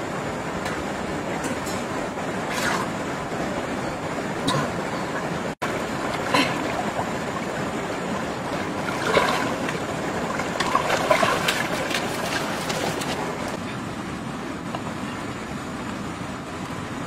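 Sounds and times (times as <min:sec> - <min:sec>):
shallow river water rushing: 0:00.0 - 0:17.0
splashing from wading: 0:05.6 - 0:13.6.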